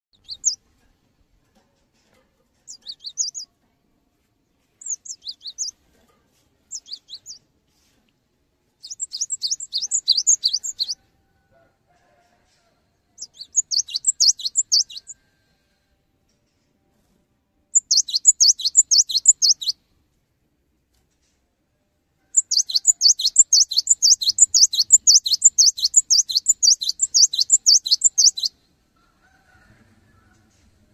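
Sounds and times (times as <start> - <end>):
bird chirping rapidly: 0.1 - 0.6, 2.7 - 3.4, 4.8 - 5.8, 6.7 - 7.4, 8.8 - 11.0, 13.2 - 15.2, 17.7 - 19.8, 22.4 - 28.6.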